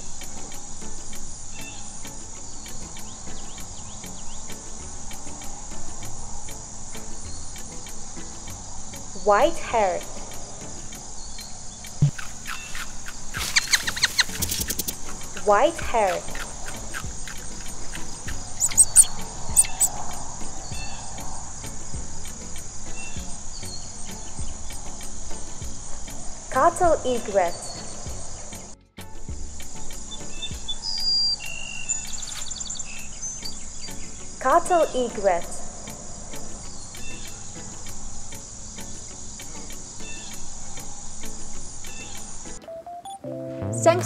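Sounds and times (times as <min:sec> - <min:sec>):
faint bird chirps: 0:00.0 - 0:09.3, 0:10.0 - 0:26.5, 0:27.1 - 0:28.8, 0:29.8 - 0:42.6
high-pitched insect trill: 0:00.0 - 0:28.8, 0:29.4 - 0:42.6
sharp high chirps: 0:11.4 - 0:21.2.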